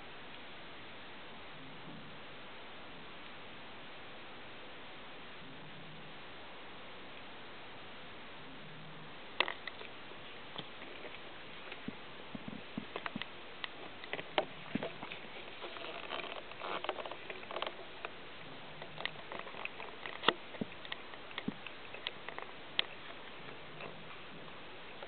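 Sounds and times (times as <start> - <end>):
small clicks: 18.8 - 24.1.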